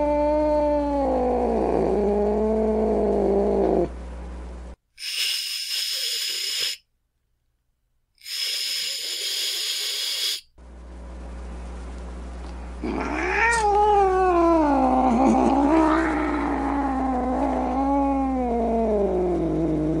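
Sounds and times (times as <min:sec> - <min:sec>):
cat hissing: 0:05.0 - 0:06.8, 0:08.2 - 0:10.5
cat yowling: 0:12.8 - 0:18.8.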